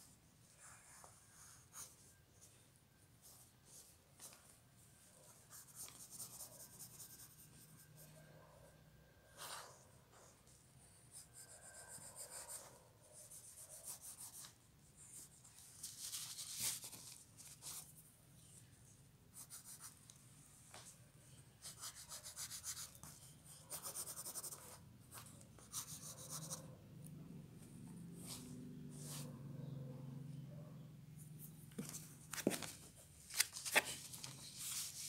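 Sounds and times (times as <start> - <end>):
pencil scratching on paper: 5.4 - 8.2, 11.0 - 17.9, 19.3 - 20.0, 21.6 - 26.7.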